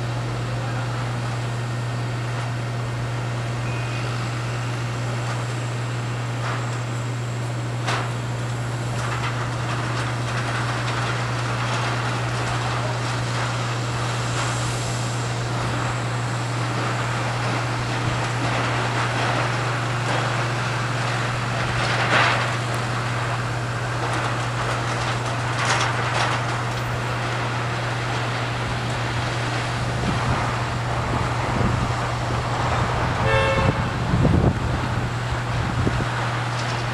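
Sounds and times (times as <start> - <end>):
low machinery drone: 0.0 - 36.9
low rising engine: 0.0 - 36.9
short horn toot: 3.6 - 4.8, 33.2 - 33.9.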